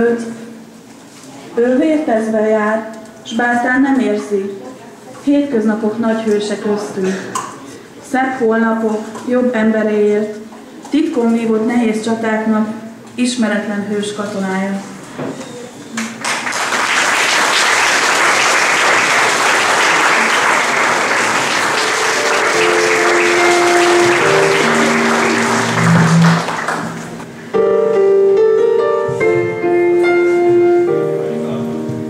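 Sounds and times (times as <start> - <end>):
audience applauding: 16.0 - 27.3
music: 21.4 - 32.0.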